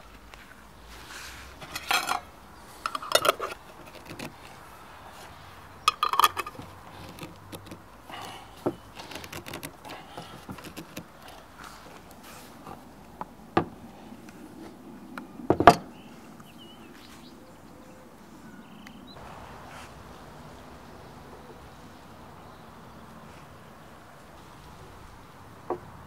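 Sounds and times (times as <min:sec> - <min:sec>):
metal lids clinking on glass jars: 0:01.6 - 0:04.3, 0:05.9 - 0:07.8
lids clicking and scraping tight: 0:01.6 - 0:04.7, 0:05.8 - 0:13.9.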